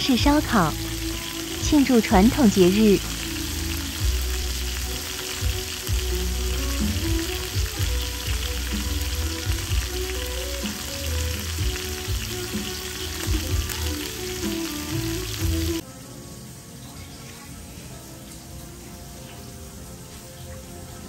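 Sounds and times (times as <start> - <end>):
meat sizzling on a grill pan: 0.0 - 15.8
music with heavy bass: 3.0 - 15.8.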